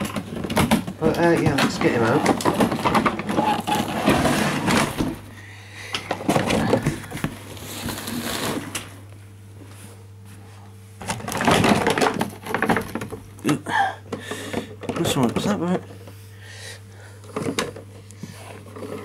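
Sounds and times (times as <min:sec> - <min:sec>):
steady low hum: 0:00.0 - 0:19.0
scraping: 0:01.0 - 0:05.0
packaging rustling: 0:06.3 - 0:08.9.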